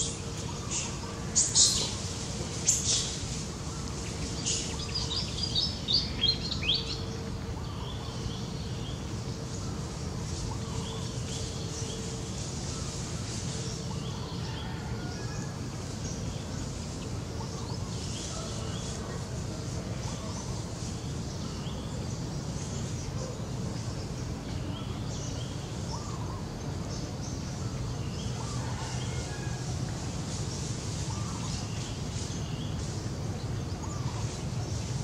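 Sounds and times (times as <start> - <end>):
small birds chirping: 0.0 - 15.0, 30.3 - 35.0
outdoor background noise: 0.0 - 35.0.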